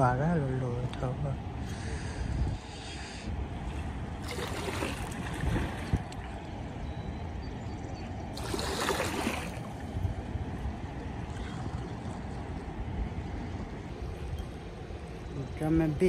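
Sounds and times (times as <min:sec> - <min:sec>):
water rushing from spillway: 0:04.2 - 0:06.0, 0:08.3 - 0:09.8.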